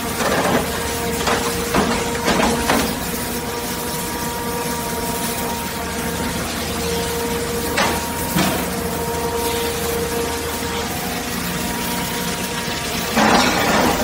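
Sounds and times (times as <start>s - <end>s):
hydraulic machinery humming: 0.0s - 14.0s.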